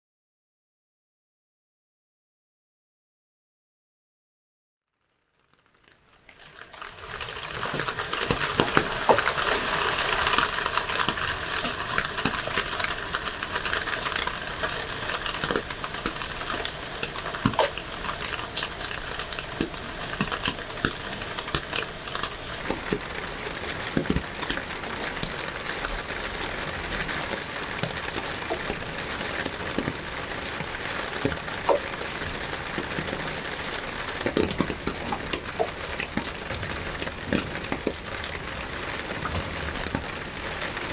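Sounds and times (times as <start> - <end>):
rain falling on leaves: 4.9 - 40.9
drops ticking: 6.2 - 38.0.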